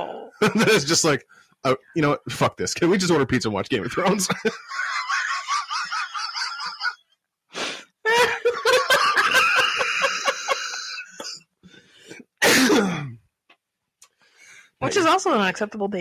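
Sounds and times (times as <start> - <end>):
person laughing and wheezing: 7.6 - 11.3.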